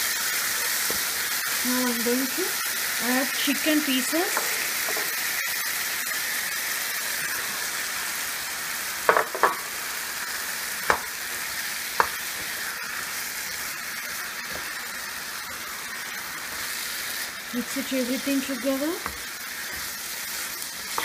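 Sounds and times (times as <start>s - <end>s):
masala sizzling in a pan: 0.0s - 21.0s
wooden spatula knocking pan: 9.1s - 9.6s, 10.9s - 11.1s, 12.0s - 12.6s.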